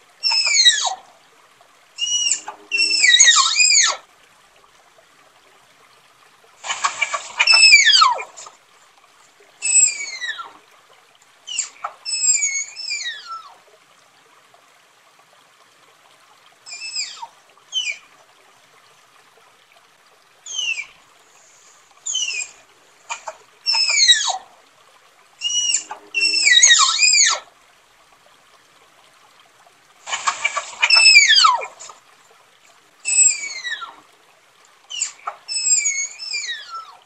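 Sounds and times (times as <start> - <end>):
tapir whistling squeals: 0.2 - 0.9, 2.0 - 4.0, 7.0 - 8.3, 9.6 - 10.5, 11.5 - 13.4, 20.5 - 20.9, 22.1 - 22.6, 23.7 - 24.4, 25.4 - 27.4, 30.2 - 31.7, 33.1 - 34.0, 34.9 - 37.0.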